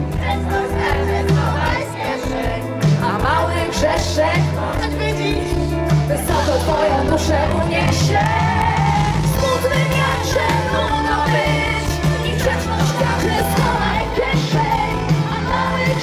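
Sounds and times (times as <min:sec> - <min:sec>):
live pop band playing: 0:00.0 - 0:16.0
woman singing into microphone: 0:00.2 - 0:16.0.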